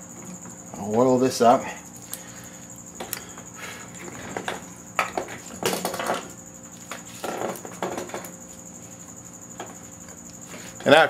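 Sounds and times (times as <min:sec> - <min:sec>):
rustling and scraping handling noise: 0:03.7 - 0:10.9.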